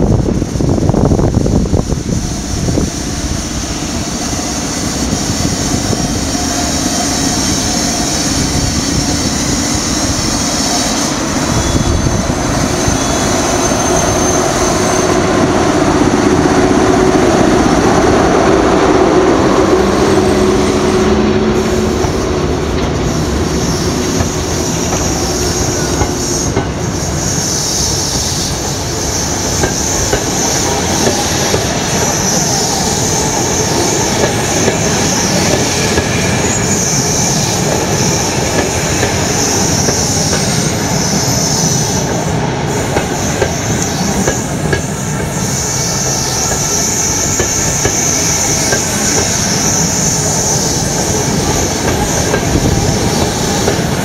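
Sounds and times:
electric locomotive humming: 0.0s - 54.0s
train wheels on rail: 0.0s - 54.0s
high-pitched wheel squeal: 7.0s - 15.3s.

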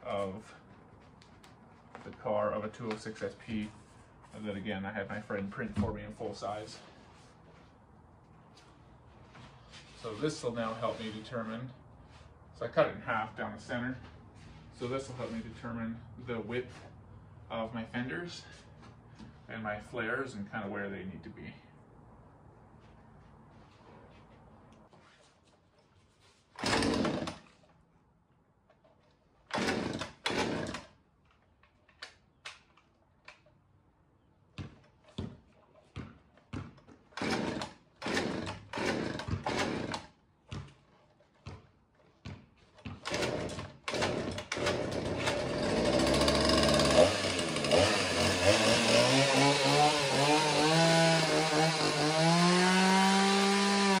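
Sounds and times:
chainsaw starter rope pulls: 26.5s - 27.8s, 28.7s - 32.2s, 36.8s - 40.2s, 42.8s - 54.0s
chainsaw engine running: 26.6s - 27.5s, 29.5s - 30.9s, 37.2s - 40.1s, 43.0s - 54.0s.

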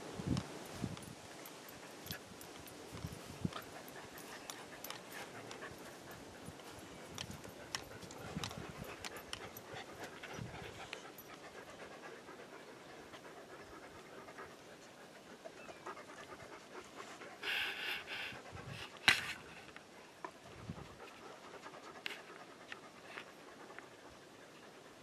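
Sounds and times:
light clicks and rustles: 0.3s - 11.7s
dogs panting: 0.9s - 25.0s.

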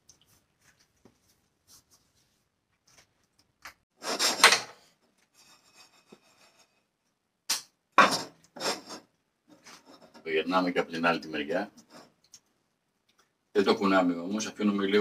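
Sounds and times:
spatula scraping frying pan: 5.4s - 6.9s.

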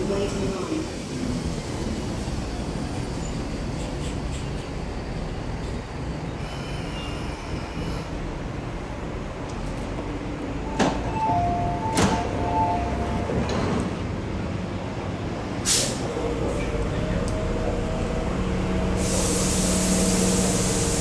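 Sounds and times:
electric train low rumble: 0.0s - 21.0s
sliding doors clunking open: 10.6s - 14.3s.

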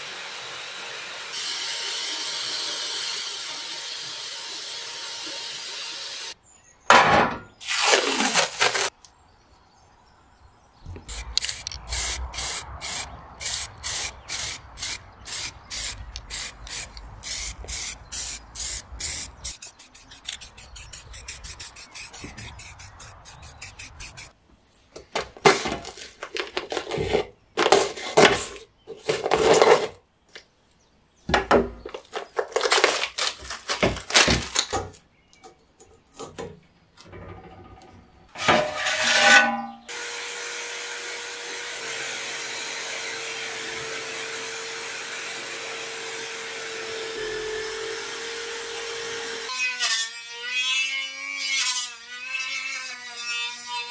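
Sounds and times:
spray paint can hissing: 11.0s - 24.4s
rotary wire brush scrubbing metal: 11.1s - 24.3s.

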